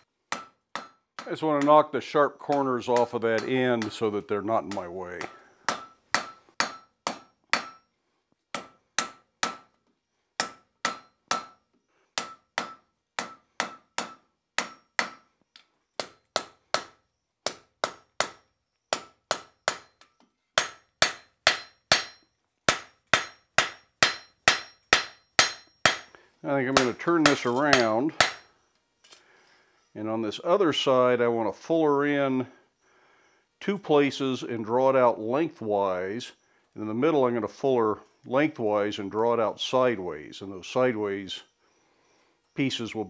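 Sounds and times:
hammer striking hot metal on anvil: 0.3s - 1.3s, 5.7s - 7.8s, 12.2s - 15.2s, 19.0s - 20.0s, 20.6s - 26.1s, 26.7s - 28.5s.

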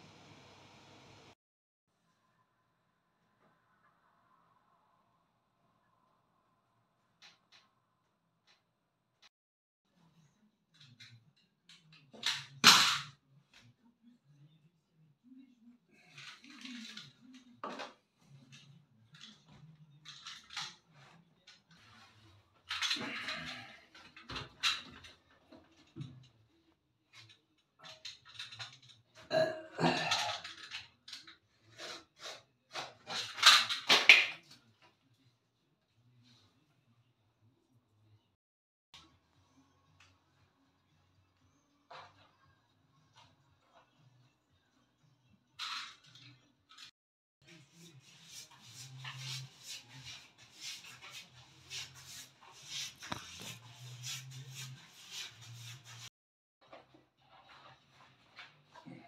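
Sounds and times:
paste brush swishing on wall: 47.8s - 56.1s.

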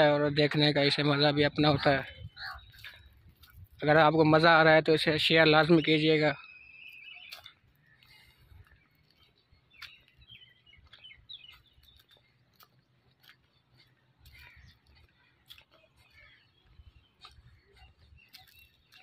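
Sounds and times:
faint bird chirps: 2.1s - 3.7s, 5.3s - 12.8s, 13.4s - 19.0s.

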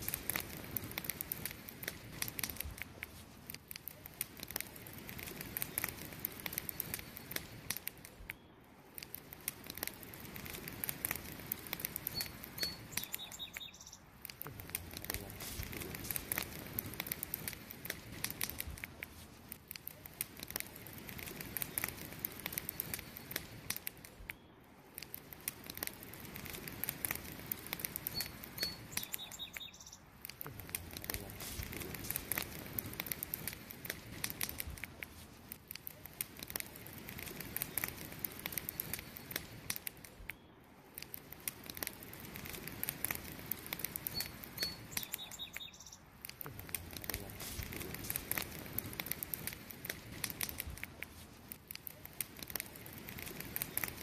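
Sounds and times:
campfire crackling and popping: 0.0s - 54.0s
bird chirping: 12.0s - 14.1s, 28.0s - 30.1s, 44.0s - 46.1s.

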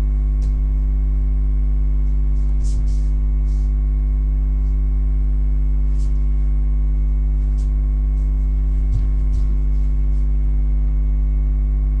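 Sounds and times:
electrical mains hum: 0.0s - 12.0s
bare feet thudding on floor: 0.4s - 0.9s, 2.1s - 3.7s, 7.3s - 10.6s.

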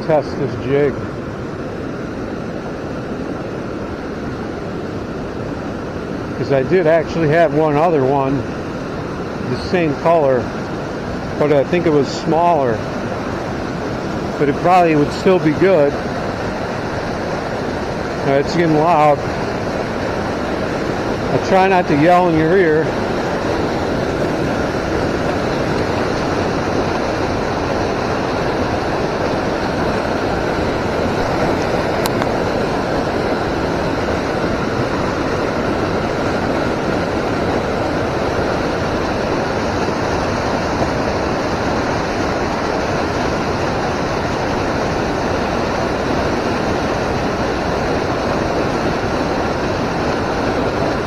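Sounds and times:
fast-flowing river water rushing: 0.0s - 51.0s.

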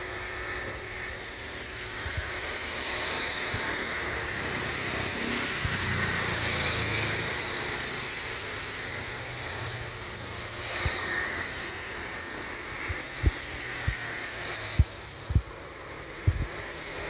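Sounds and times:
jet engines rumbling and hissing: 0.0s - 17.0s
wind buffeting microphone: 16.2s - 16.7s.

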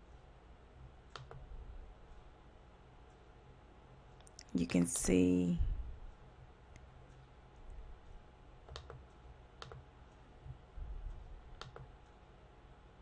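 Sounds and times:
faint low hum: 0.0s - 13.0s
computer mouse clicking: 0.8s - 1.5s, 8.6s - 12.2s.

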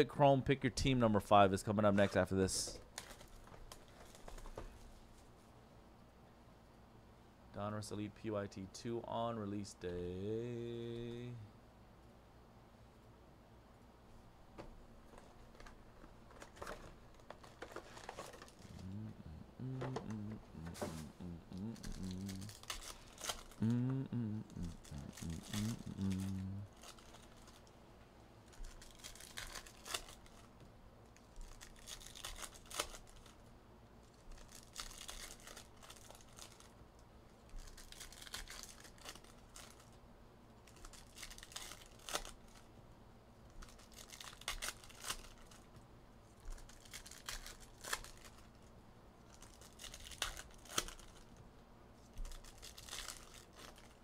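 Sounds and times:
card wrappers tearing and crinkling: 2.9s - 4.6s, 15.2s - 27.7s, 28.5s - 30.6s, 31.2s - 36.8s, 37.4s - 40.0s, 40.6s - 42.7s, 43.5s - 45.7s, 46.4s - 51.4s, 52.1s - 54.0s.

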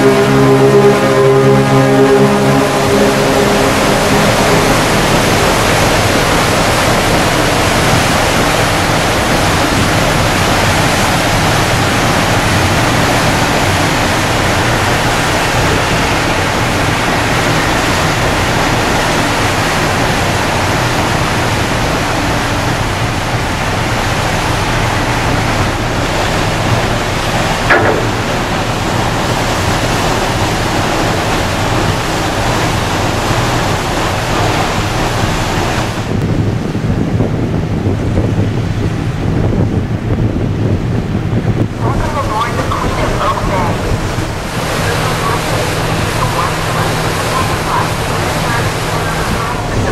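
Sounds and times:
propeller wash churning water: 0.0s - 49.9s
ship engine hum: 0.0s - 49.9s
short knock: 27.7s - 28.8s.

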